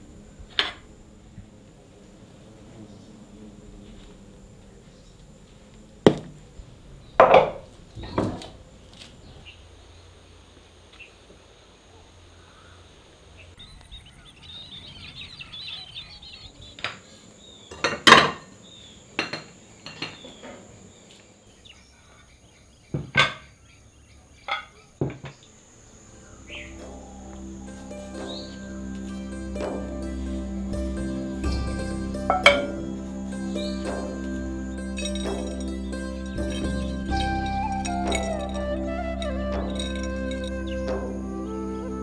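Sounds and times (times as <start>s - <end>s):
faint chirping: 0.0s - 42.0s
faint steady high tone: 25.4s - 42.0s
utensils and pots clinking: 34.9s - 38.6s.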